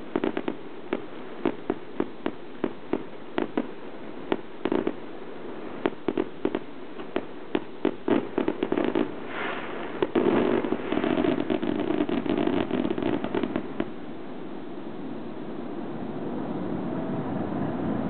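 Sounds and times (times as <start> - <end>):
fireworks sharp bangs: 0.0 - 14.4
fireworks crackling bursts: 0.0 - 14.8.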